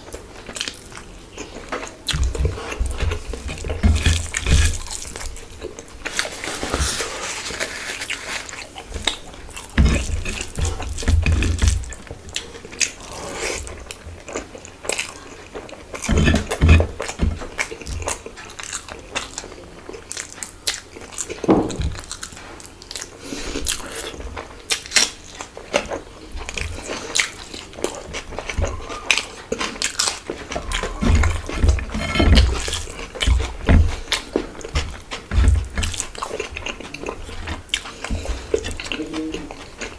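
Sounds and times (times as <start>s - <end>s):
wet chewing and lip smacking: 8.0s - 39.9s.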